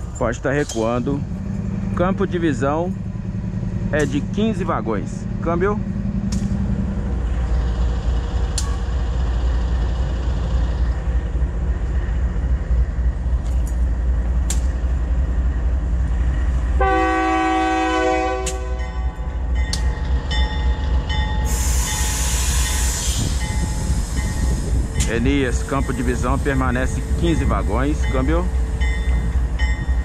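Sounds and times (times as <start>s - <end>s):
locomotive engine rumbling: 0.0s - 30.0s
locomotive horn: 16.8s - 19.1s
air hiss: 21.4s - 25.0s.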